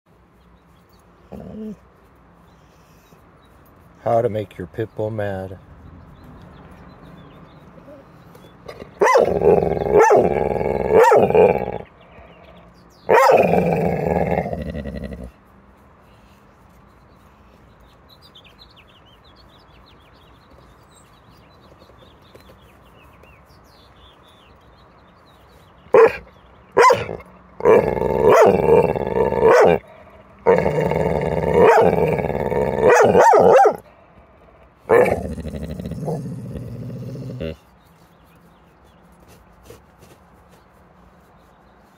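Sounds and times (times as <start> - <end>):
dog grumbling: 1.3 - 1.8, 8.7 - 15.3, 26.0 - 33.8, 34.9 - 37.6.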